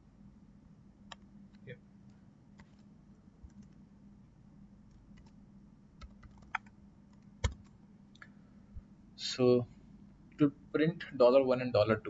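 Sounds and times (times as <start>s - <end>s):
faint steady hum: 0.0s - 12.0s
computer keyboard keys clicking: 6.0s - 7.7s.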